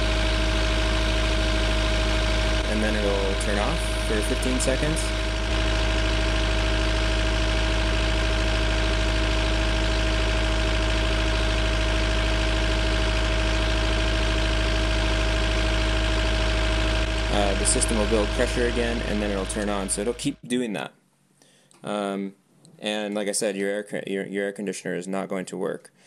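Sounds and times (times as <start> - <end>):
diesel engine idling: 0.0 - 20.4.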